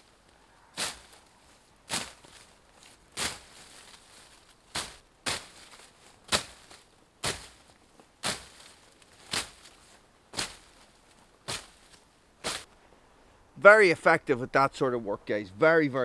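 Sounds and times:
blade slashing through undergrowth: 0.0s - 12.7s.

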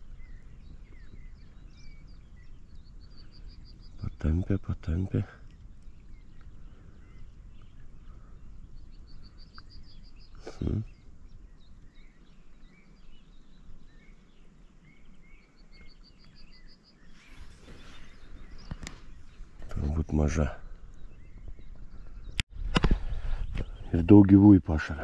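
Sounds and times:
songbird trilling: 5.4s - 22.4s.

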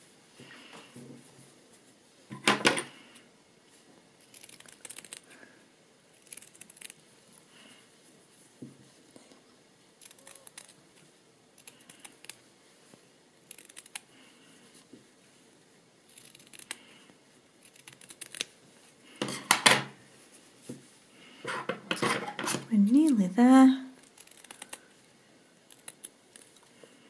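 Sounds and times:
scissors snipping fabric: 17.6s - 18.5s.

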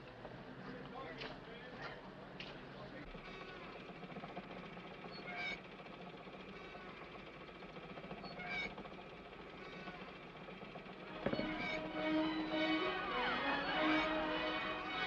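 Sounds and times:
film soundtrack hiss: 10.2s - 15.0s
orchestral music: 11.1s - 15.0s
mechanical figures squeaking: 11.2s - 12.0s.

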